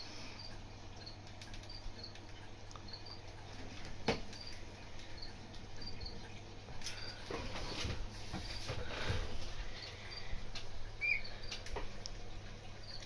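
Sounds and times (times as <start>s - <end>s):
parrot chirping: 11.0s - 11.6s.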